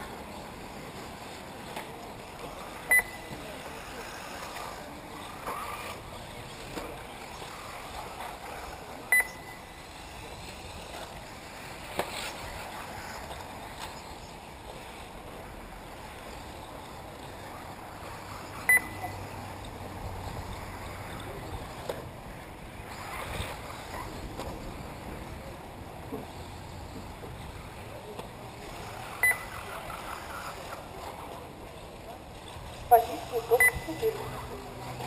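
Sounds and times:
outdoor background noise: 0.0s - 35.0s
short high electronic beeps: 2.9s - 3.3s, 9.1s - 9.7s, 18.7s - 19.2s, 29.2s - 29.5s, 33.6s - 34.0s.

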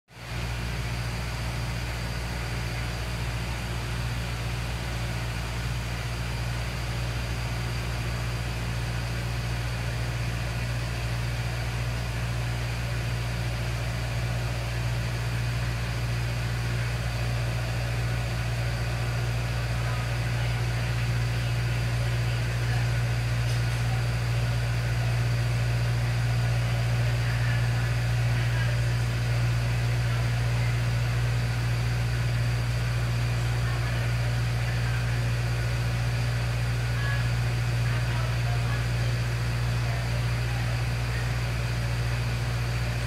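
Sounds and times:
steady machine hum: 0.1s - 43.0s.

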